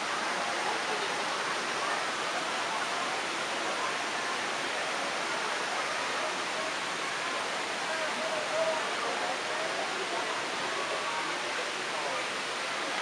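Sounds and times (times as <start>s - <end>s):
faint voices: 0.0s - 13.0s
flowing water rushing: 0.0s - 13.0s.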